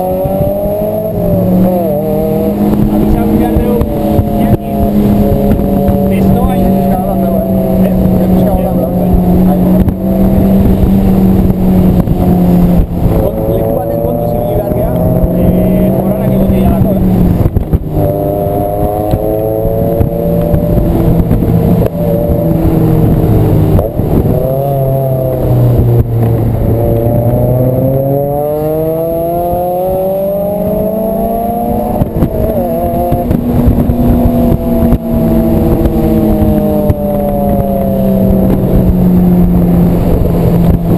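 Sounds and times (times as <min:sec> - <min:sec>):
car engine driving: 0:00.0 - 0:40.9
wind rushing: 0:00.0 - 0:40.9.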